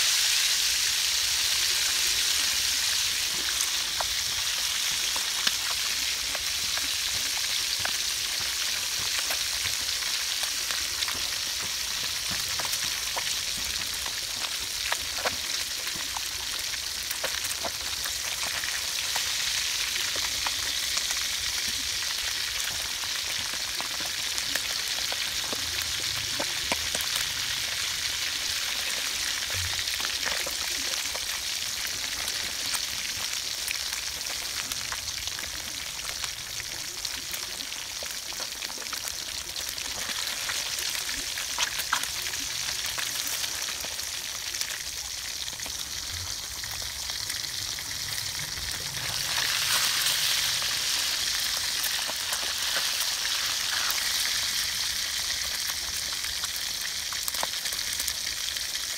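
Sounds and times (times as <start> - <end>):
fish frying in oil: 0.0 - 58.9.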